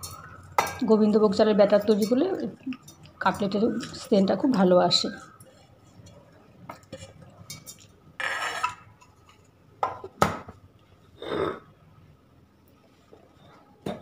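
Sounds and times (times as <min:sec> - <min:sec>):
spoon scraping steel bowl: 0:06.9 - 0:09.4.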